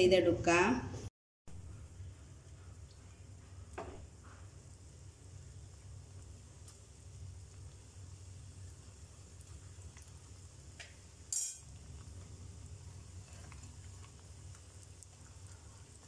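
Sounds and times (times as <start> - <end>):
food deep-frying in oil: 1.5 - 16.0
sharp clink: 11.3 - 11.6.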